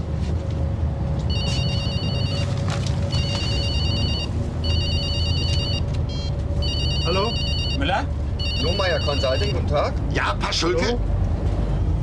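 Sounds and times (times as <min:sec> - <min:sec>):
bus engine rumbling: 0:00.0 - 0:12.0
phone ringtone trilling: 0:01.3 - 0:02.4, 0:03.2 - 0:07.8, 0:08.4 - 0:09.5.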